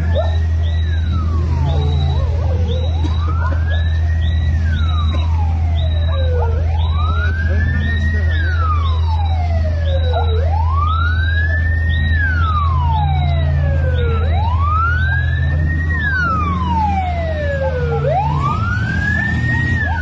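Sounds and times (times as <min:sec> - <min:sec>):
emergency siren wailing: 0:00.0 - 0:20.0
faint fast sweeping siren: 0:00.0 - 0:20.0.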